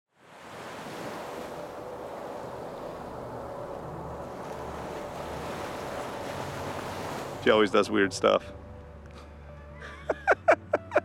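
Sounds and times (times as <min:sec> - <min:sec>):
rushing wind: 0:00.1 - 0:07.5
rushing water: 0:00.1 - 0:09.0.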